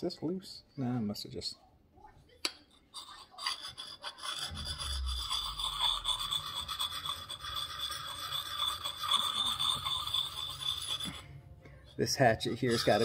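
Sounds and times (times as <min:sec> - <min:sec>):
stone rasping on steel: 0:02.9 - 0:11.3, 0:12.5 - 0:13.0.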